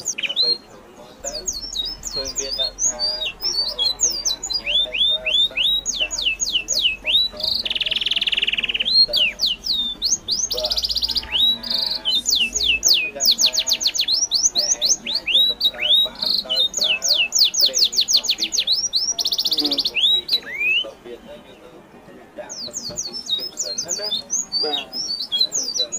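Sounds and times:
buzzy bird trills: 0.0 - 21.4
birds chirping: 0.0 - 25.9.

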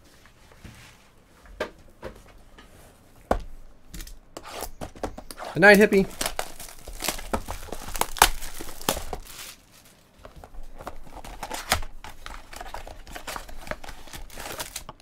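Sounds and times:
plastic wrapping crinkling: 5.3 - 15.0.

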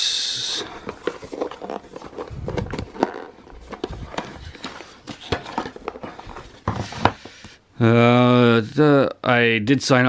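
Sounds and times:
cardboard box being handled: 0.6 - 7.2.

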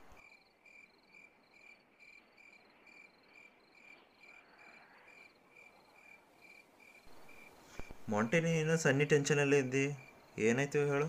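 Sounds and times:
faint crickets chirping: 0.0 - 11.0.

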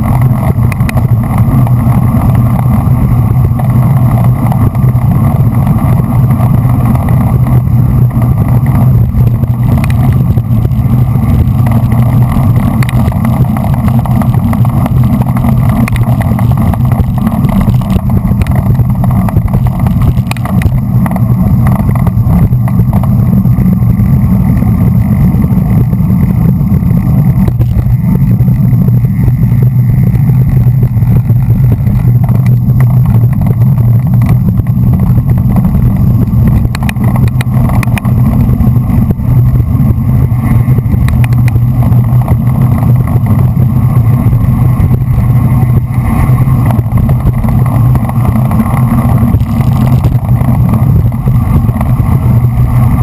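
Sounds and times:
tyre and road noise: 0.0 - 53.0
wind buffeting microphone: 0.0 - 53.0.

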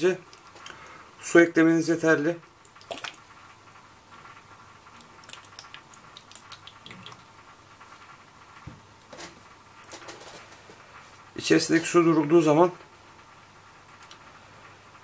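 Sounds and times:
water trickling and dripping: 2.5 - 8.1.

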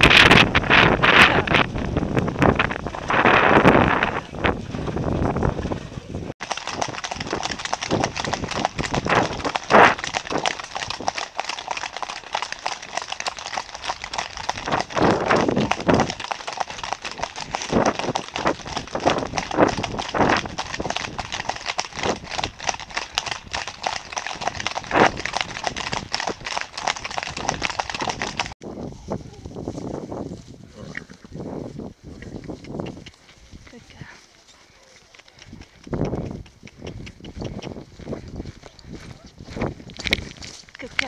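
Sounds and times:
horse hooves on tarmac: 0.0 - 28.6, 30.0 - 41.0
close loud hoofbeats: 6.4 - 28.6.

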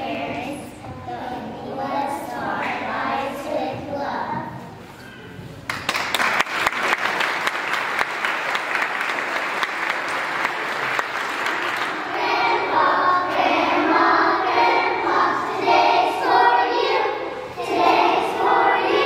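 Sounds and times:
children's choir singing: 0.0 - 4.8, 9.5 - 19.0
audience applauding: 5.7 - 12.1.

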